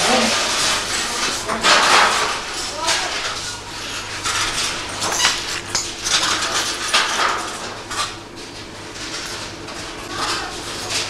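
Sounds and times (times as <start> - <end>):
glass shards clinking: 0.3 - 8.0
footsteps crunching on glass: 0.8 - 8.0.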